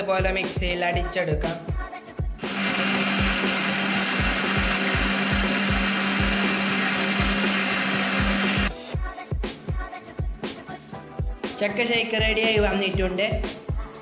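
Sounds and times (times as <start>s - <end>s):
mixer grinder whirring: 2.4s - 8.7s.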